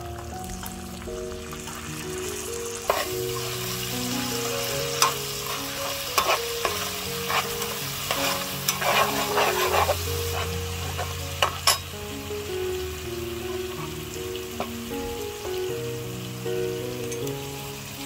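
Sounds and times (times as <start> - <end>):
oil sizzling in a frying pan: 0.0 - 18.0
metal ladle clinking against pan: 2.9 - 3.5, 4.9 - 11.9.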